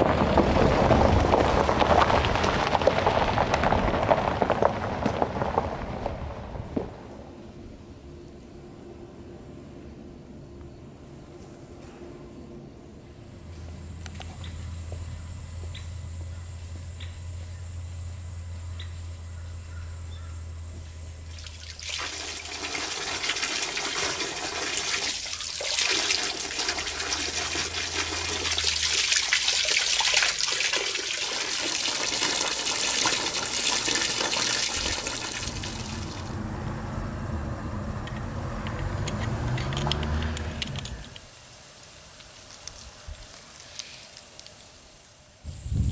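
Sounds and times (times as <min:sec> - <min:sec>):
low hum: 0:05.7 - 0:21.7, 0:33.1 - 0:41.3
water rushing: 0:21.3 - 0:36.4.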